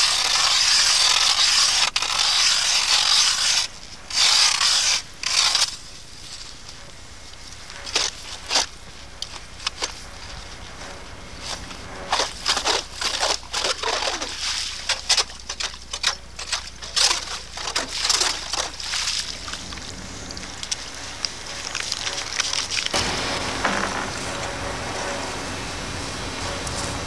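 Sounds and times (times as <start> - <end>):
ice auger crunching ice: 0.0 - 6.7, 7.6 - 10.8, 11.4 - 23.2
slush and water sloshing: 11.4 - 23.5.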